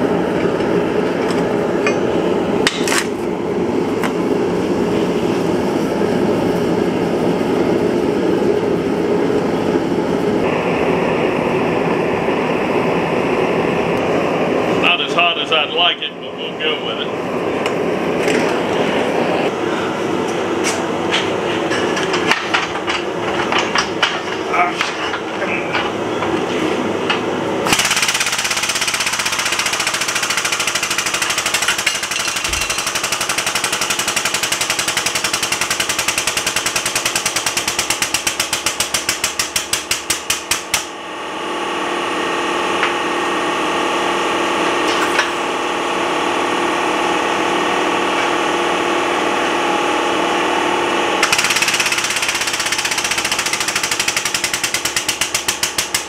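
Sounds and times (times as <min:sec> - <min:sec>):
hydraulic pump chattering: 0:51.2 - 0:56.0.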